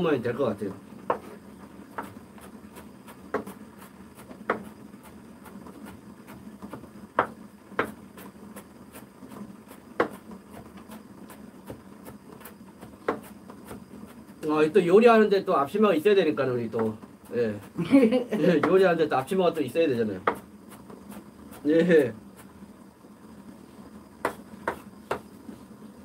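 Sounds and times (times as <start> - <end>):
knife chopping on wooden board: 1.0 - 1.3, 1.9 - 14.2, 20.2 - 21.7, 24.2 - 25.3.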